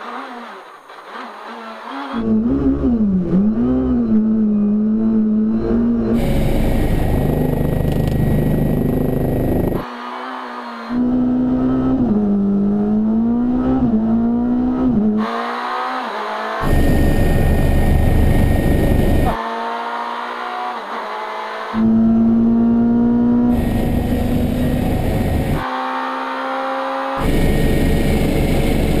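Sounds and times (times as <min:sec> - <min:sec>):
rally car engine high revs: 0:00.0 - 0:29.0
rotor and wind noise: 0:05.9 - 0:12.8, 0:16.6 - 0:19.5, 0:21.1 - 0:25.7, 0:26.6 - 0:29.0
helicopter cockpit whine: 0:06.2 - 0:09.8, 0:16.6 - 0:19.4, 0:23.5 - 0:25.6, 0:27.2 - 0:29.0.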